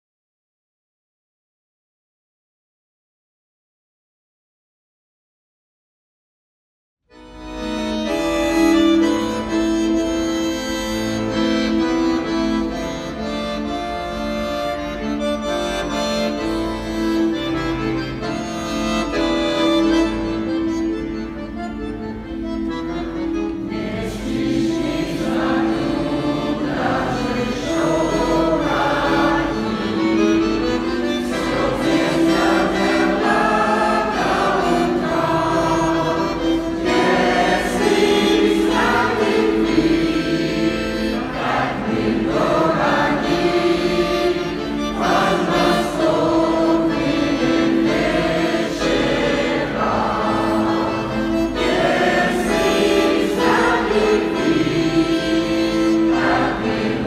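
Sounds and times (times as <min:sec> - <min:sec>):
button accordion sustained notes: 0:07.1 - 0:57.0
mixed choir singing: 0:23.6 - 0:57.0.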